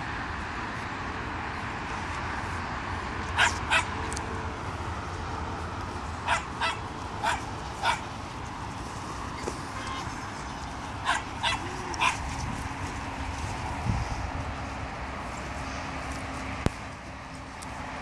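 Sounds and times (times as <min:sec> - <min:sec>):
puppy play-barking: 0:03.4 - 0:03.9, 0:06.2 - 0:08.1, 0:11.0 - 0:12.3.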